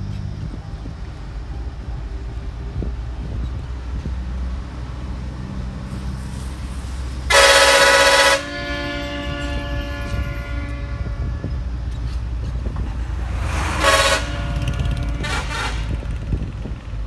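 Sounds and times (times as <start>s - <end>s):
low engine rumble: 0.0s - 17.0s
bus horn blast: 7.3s - 16.5s.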